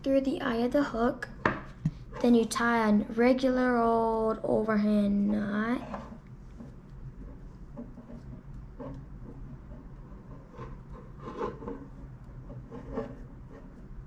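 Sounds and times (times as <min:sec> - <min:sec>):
low steady hum: 0:00.0 - 0:14.0
cord rubbing and rustling: 0:05.3 - 0:14.0.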